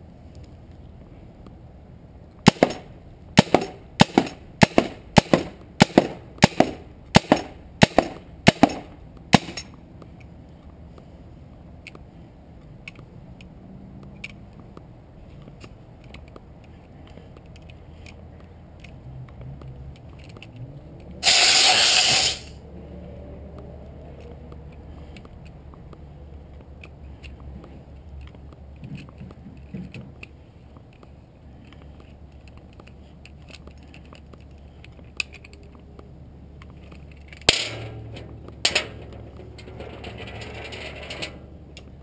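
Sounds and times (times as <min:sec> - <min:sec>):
pistol handling clicks: 0:11.8 - 0:21.4, 0:23.5 - 0:37.7
gas hissing from pistol: 0:21.2 - 0:22.6.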